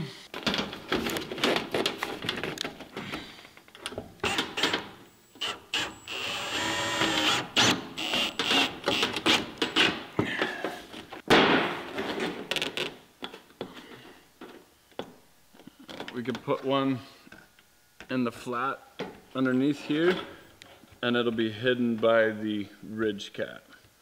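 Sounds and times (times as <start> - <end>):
cordless drill motor whine: 5.3 - 8.7.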